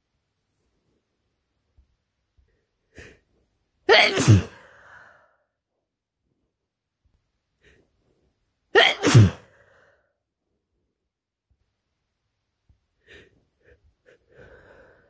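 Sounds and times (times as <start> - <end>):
person sneezing: 3.9 - 4.7, 8.8 - 9.6.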